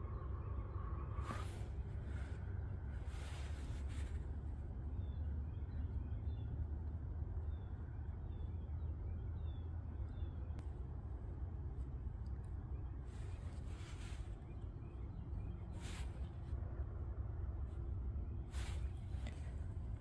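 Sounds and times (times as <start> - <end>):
steady low rumble: 0.0 - 20.0.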